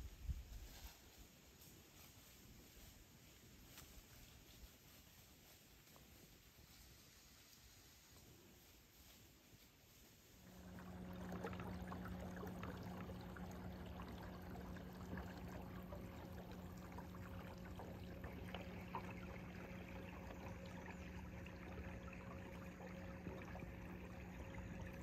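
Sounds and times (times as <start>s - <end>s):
small boat motor running: 10.4s - 25.0s
water lapping against hull: 10.4s - 25.0s.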